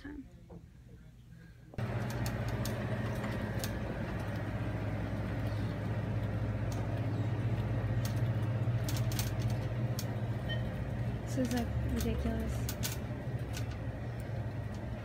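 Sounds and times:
shopping cart rolling on carpet: 1.8 - 15.0.

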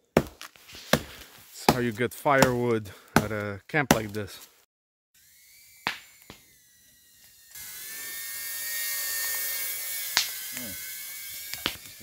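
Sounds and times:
drone propellers whining: 5.2 - 12.0.

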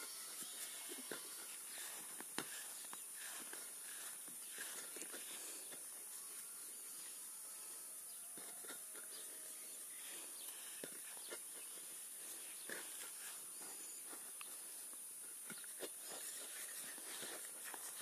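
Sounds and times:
steady high hiss: 0.0 - 18.0.

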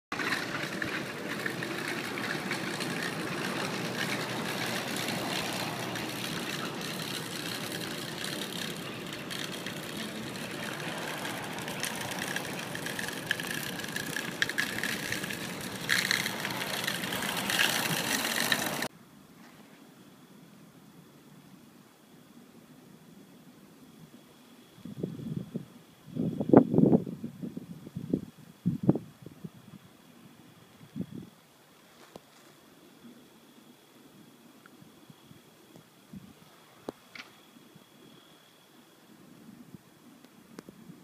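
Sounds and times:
traffic on wet road: 0.1 - 18.9.

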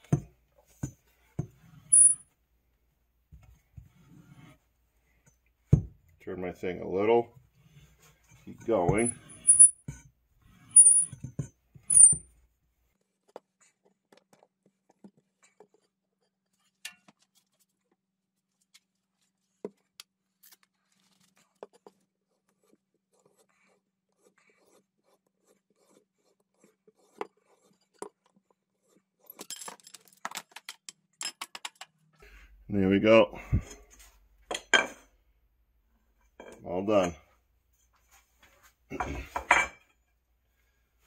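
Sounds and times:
pipe cutter squeak: 1.9 - 2.2, 9.0 - 9.8, 10.6 - 11.2, 11.8 - 12.2.

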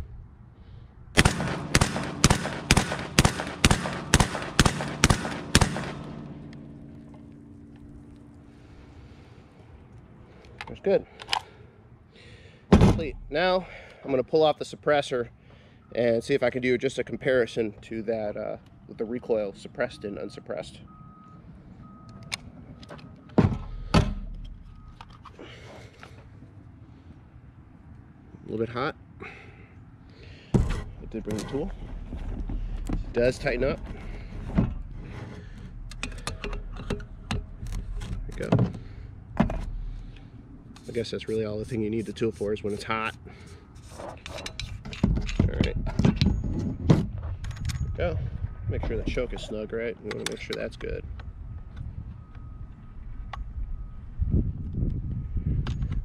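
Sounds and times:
suppressed shotgun shots: 1.2 - 6.6
low rumble: 47.0 - 49.6.

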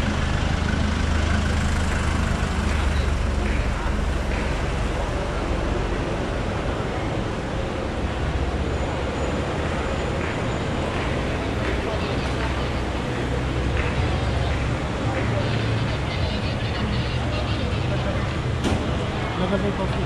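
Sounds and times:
traffic noise: 0.0 - 20.0
vehicle engine rumble: 0.0 - 20.0
people talking nearby: 0.6 - 20.0.

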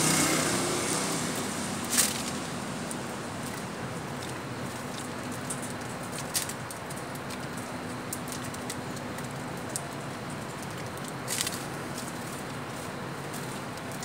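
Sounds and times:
steady background hiss: 0.0 - 14.0
birds pecking seed clicks: 4.2 - 12.6.

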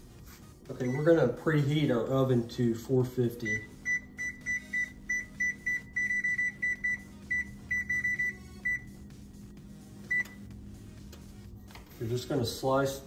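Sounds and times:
steady low hum: 0.0 - 13.0
oven control panel beeping: 0.7 - 1.4, 3.4 - 9.0, 10.0 - 10.5.

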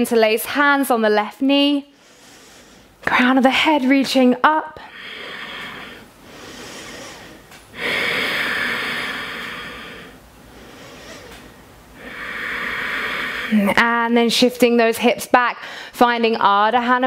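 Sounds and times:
woman breathing deeply: 1.9 - 3.0, 4.8 - 13.7, 15.6 - 16.0.

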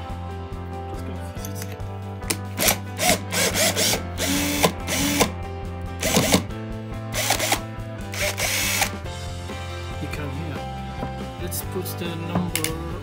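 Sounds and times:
background music: 0.0 - 13.0
cordless drill bursts: 2.6 - 5.3, 6.0 - 6.4, 7.1 - 9.0.

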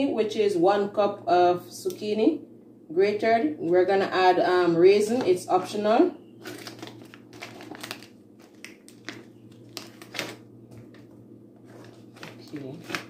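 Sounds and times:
plastic pouch crinkling: 6.4 - 13.0.

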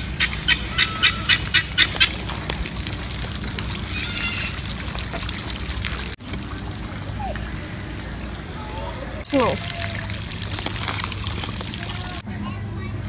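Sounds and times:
guineafowl calling: 0.0 - 2.2, 3.9 - 4.7
steady background noise: 0.0 - 13.0.

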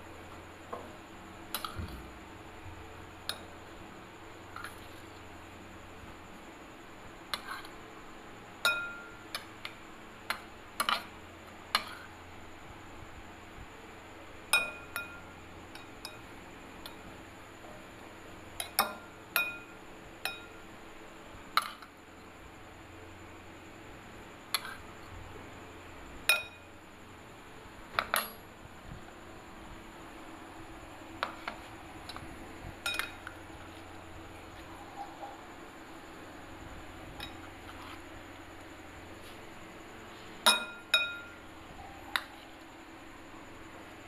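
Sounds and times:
metal spoon clinking glass bowl: 32.8 - 33.3.

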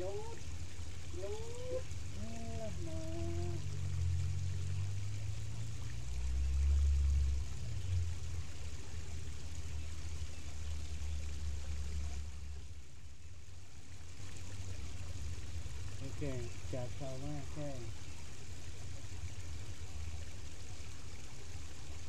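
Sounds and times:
river running over rocks: 0.0 - 12.5, 13.8 - 22.0
low rumble: 2.0 - 9.1.

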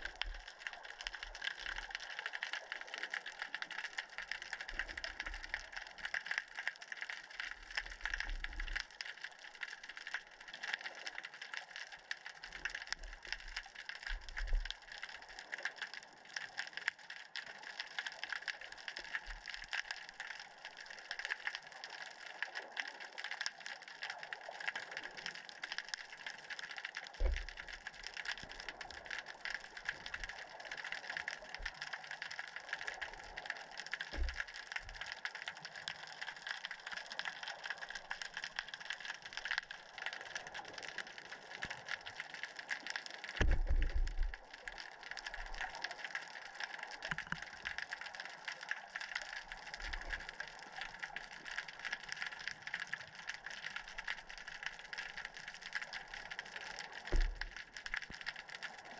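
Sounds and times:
underwater crackling hiss: 17.4 - 58.9
low underwater thumps: 43.4 - 44.3.

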